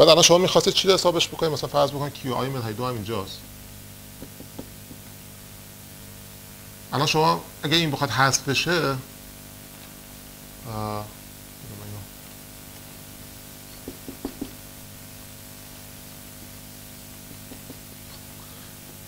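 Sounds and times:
steady electrical hum: 0:00.0 - 0:19.0
marker writing on whiteboard: 0:04.2 - 0:05.0, 0:13.8 - 0:14.6
man humming: 0:17.2 - 0:19.0.

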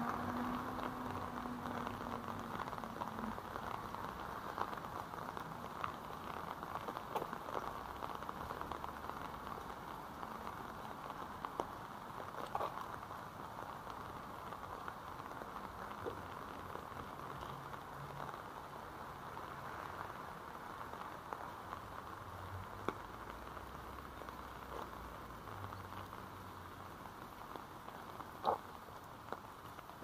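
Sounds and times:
raindrops ticking close by: 0:00.0 - 0:30.0
steady rain hiss: 0:00.0 - 0:30.0.

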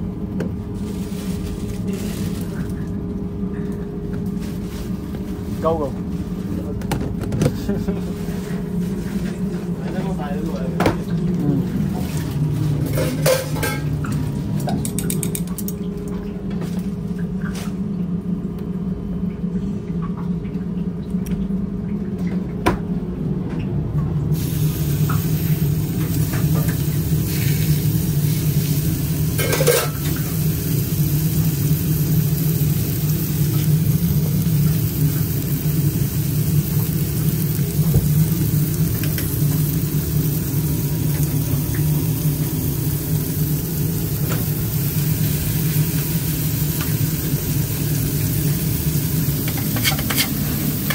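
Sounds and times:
steady low hum: 0:00.0 - 0:50.9
burger patties sizzling on griddle: 0:24.4 - 0:50.9.

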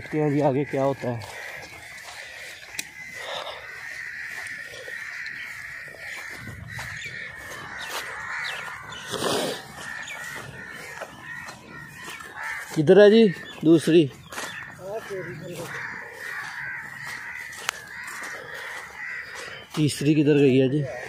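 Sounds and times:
wild birds calling: 0:00.0 - 0:21.0.

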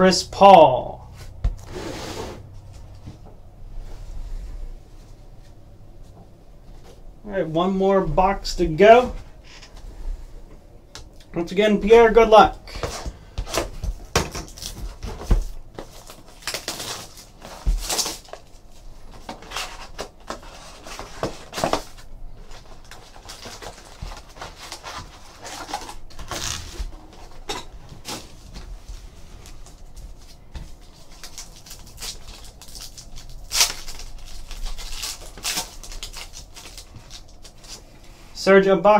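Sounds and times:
blade slitting plastic wrap: 0:15.9 - 0:18.6, 0:22.8 - 0:26.9, 0:31.1 - 0:37.8.

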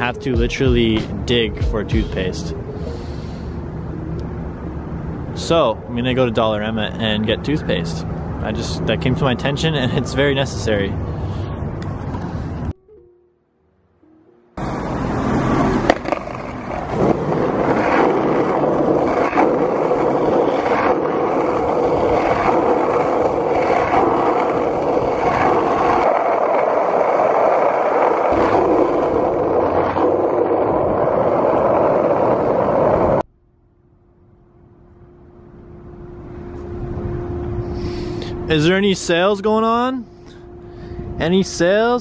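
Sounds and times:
skateboard wheels rolling on asphalt: 0:14.6 - 0:33.2
skateboard clacking over cracks: 0:15.8 - 0:27.1.

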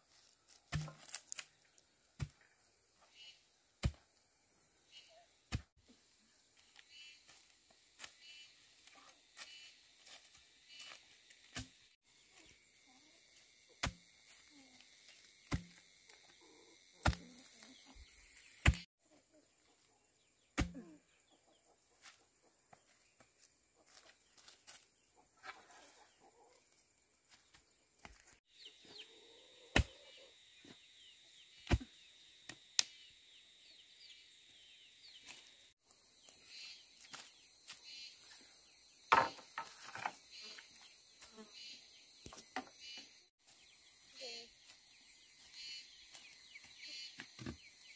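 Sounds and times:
insect buzz: 0:06.4 - 0:18.9, 0:29.2 - 0:47.9
chickens clucking: 0:25.0 - 0:26.8.

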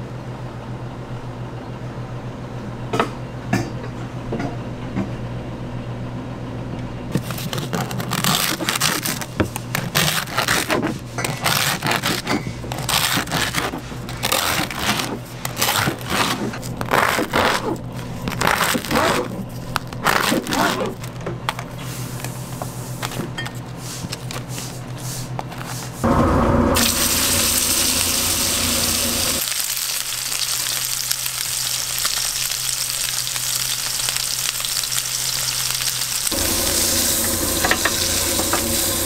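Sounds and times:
knife sawing crusty bread: 0:07.2 - 0:21.1
low hum: 0:26.0 - 0:29.5, 0:36.3 - 0:39.0.

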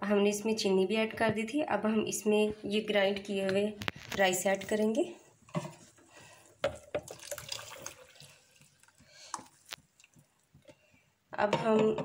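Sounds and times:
liquid splashing and dripping: 0:06.7 - 0:10.6.

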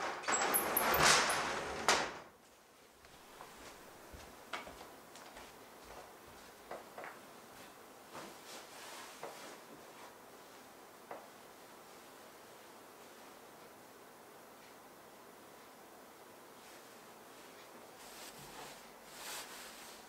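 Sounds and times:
cloth rustling: 0:17.4 - 0:20.0.

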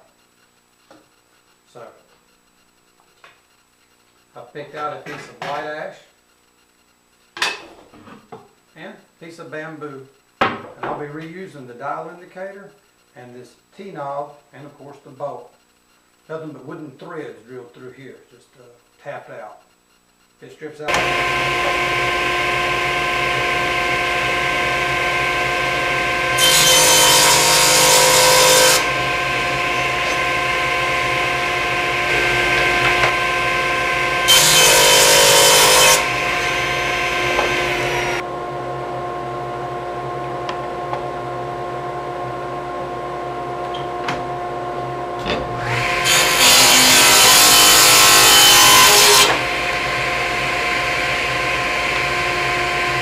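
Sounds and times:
saw cutting wood: 0:20.9 - 0:38.3, 0:45.2 - 0:53.0
table saw motor hum: 0:20.9 - 0:53.0.

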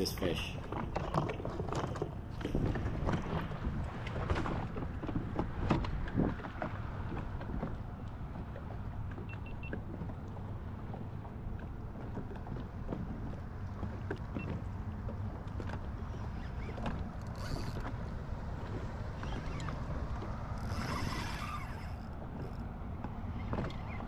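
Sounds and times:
wind buffeting microphone: 0:00.6 - 0:08.9.

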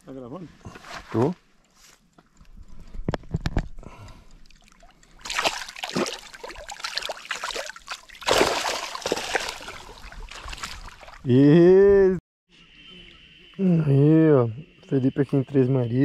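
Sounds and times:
water splashing and sloshing: 0:03.3 - 0:11.3.

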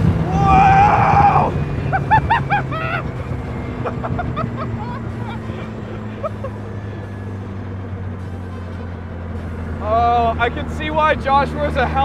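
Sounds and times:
car engine cruising: 0:00.0 - 0:12.0
man laughing: 0:00.3 - 0:07.4.

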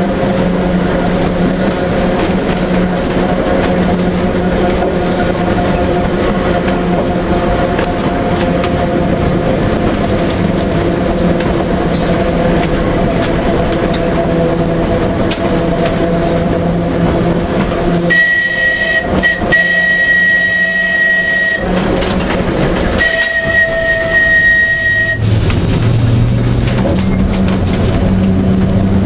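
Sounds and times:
tram motors humming on track: 0:00.0 - 0:29.0
high tram whistle: 0:18.0 - 0:21.7, 0:22.9 - 0:25.3.

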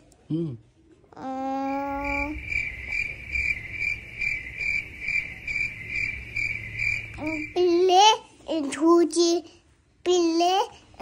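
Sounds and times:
cricket chirping: 0:01.8 - 0:07.7
steady held tone: 0:01.8 - 0:07.8.

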